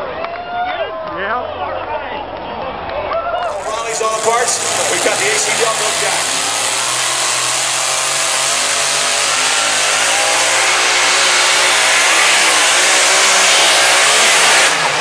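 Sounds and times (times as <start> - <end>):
tractor engine under load: 3.5 - 15.0.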